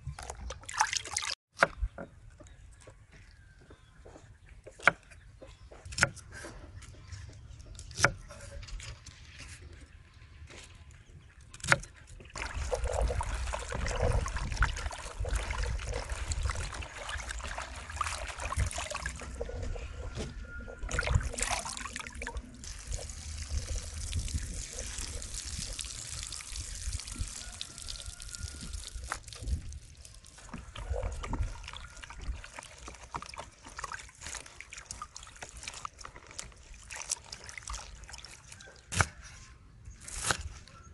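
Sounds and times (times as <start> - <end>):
vegetables sloshing in water: 12.3 - 19.7, 20.8 - 39.1.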